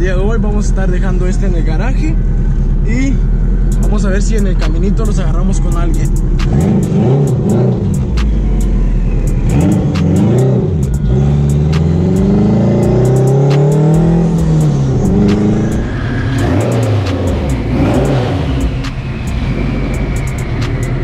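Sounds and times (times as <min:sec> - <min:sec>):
car engine accelerating: 0:00.0 - 0:21.0
sharp clicks: 0:06.0 - 0:12.4.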